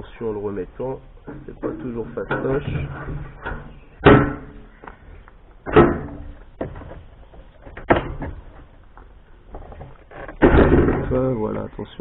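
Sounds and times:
knocks and thuds of fuel tank: 0:01.3 - 0:04.6, 0:05.6 - 0:07.0, 0:07.7 - 0:08.6.

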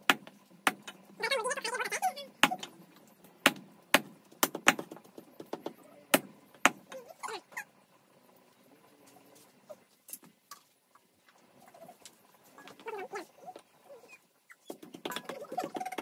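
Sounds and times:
cleaver chopping on wood: 0:00.0 - 0:01.0, 0:03.4 - 0:06.8.

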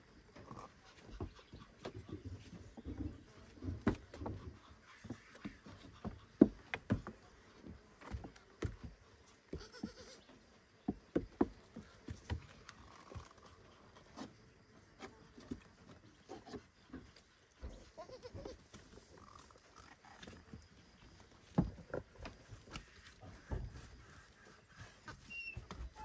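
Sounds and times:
goat hooves on wooden boards: 0:00.1 - 0:26.0
faint goat bleating: 0:09.5 - 0:10.3, 0:17.8 - 0:18.7.

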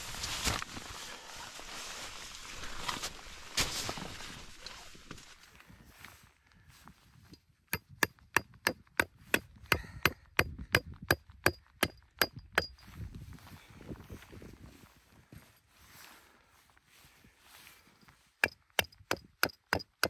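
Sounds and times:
metal stake hammered into ground: 0:07.7 - 0:12.8, 0:18.4 - 0:20.0.

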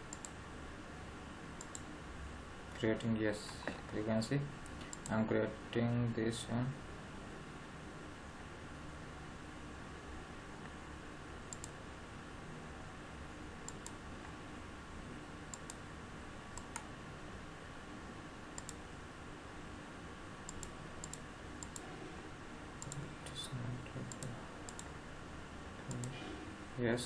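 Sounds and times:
background hiss: 0:00.0 - 0:27.0.

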